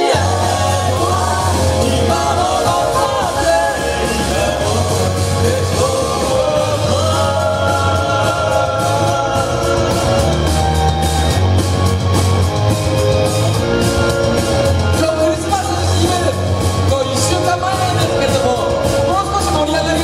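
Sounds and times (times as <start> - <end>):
man singing into a microphone: 0.0 - 10.4
pop backing music with bass: 0.0 - 20.0.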